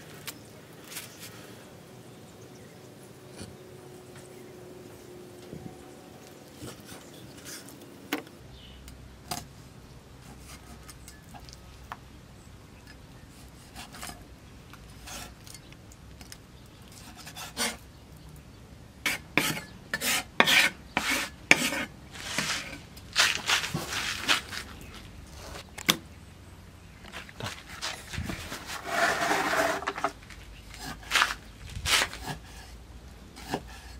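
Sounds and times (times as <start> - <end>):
cleaver scraping on chopping block: 19.1 - 24.4, 27.6 - 32.7, 33.4 - 33.9.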